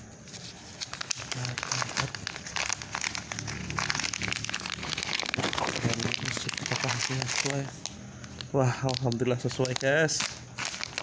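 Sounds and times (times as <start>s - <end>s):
plastic mailer pouch crinkling: 0.0s - 11.0s.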